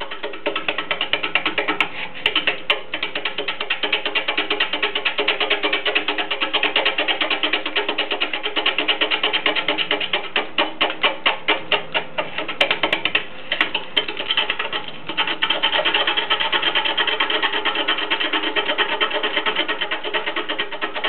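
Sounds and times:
gouge cutting wood on lathe: 14.2 - 21.0.

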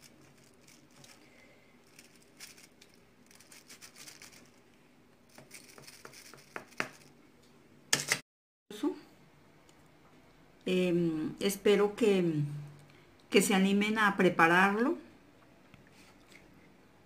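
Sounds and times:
crinkling scrape: 0.0 - 7.1.

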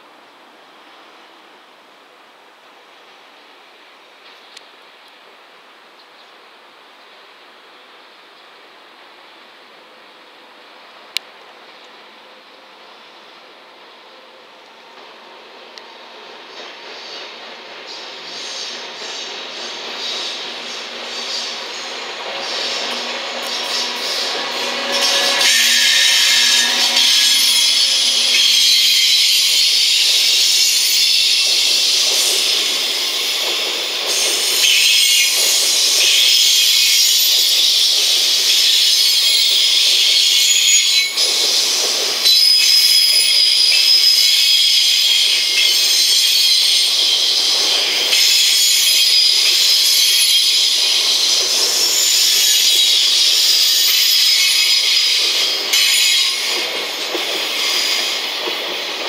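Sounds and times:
rumble of train wheels: 0.1 - 59.0
train wheels screeching: 16.2 - 59.0.

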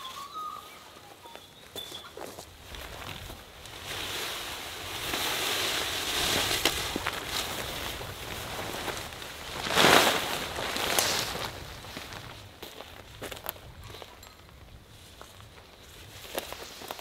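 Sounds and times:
wind blowing: 2.1 - 16.9
fabric tarp rustling and flapping: 2.2 - 12.5.

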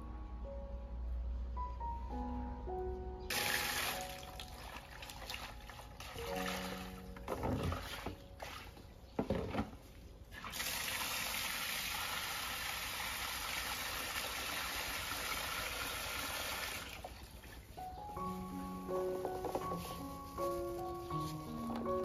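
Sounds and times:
background music: 0.0 - 9.0, 17.6 - 22.0
water splashing in plastic basin: 3.3 - 17.7.

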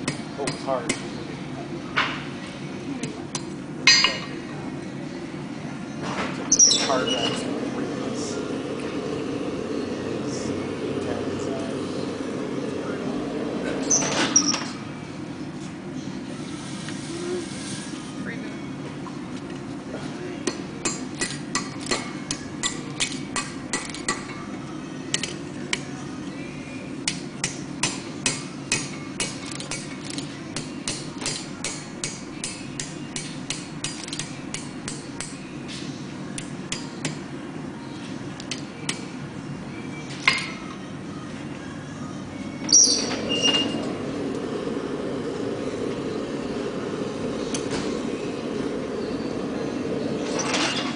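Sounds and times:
hammer striking steel on anvil: 3.9 - 4.3, 20.4 - 24.4, 27.1 - 29.9, 30.6 - 35.4
steady low rush: 7.4 - 13.9, 43.8 - 50.2.

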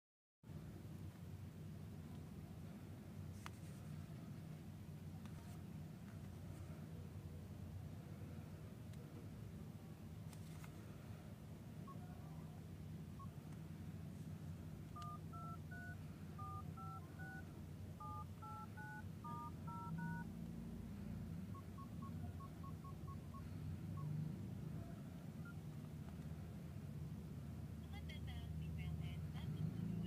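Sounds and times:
two-tone keypad beeps: 15.0 - 17.4, 18.0 - 20.2, 21.5 - 24.1.

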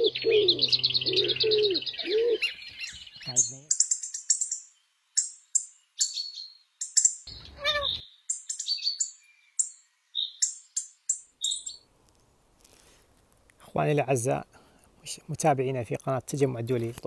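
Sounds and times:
bird falling call: 0.0 - 3.4
small birds chirping: 0.0 - 13.0.

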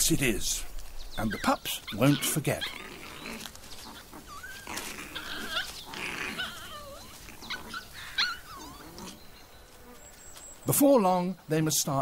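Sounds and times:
pups whimpering and whining: 1.2 - 10.5.

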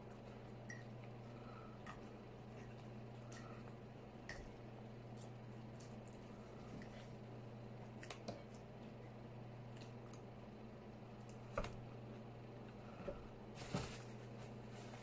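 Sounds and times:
chewing food: 0.0 - 10.4
steady low hum: 0.0 - 15.0.

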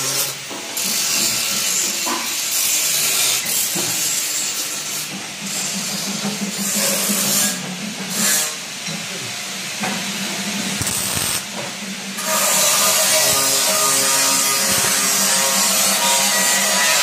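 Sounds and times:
welder arc hissing and crackling: 0.0 - 6.0, 9.6 - 17.0.

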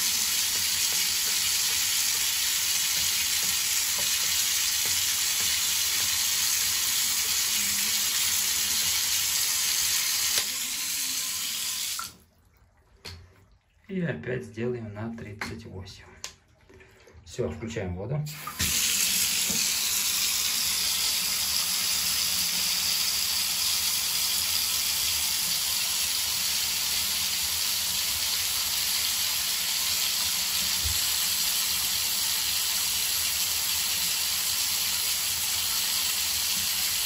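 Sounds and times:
water running into bathtub: 0.0 - 37.0.

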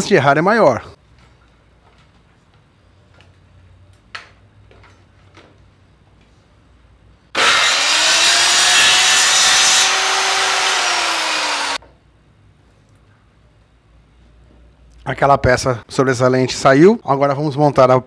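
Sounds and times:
circular saw cutting wood: 7.4 - 11.8.

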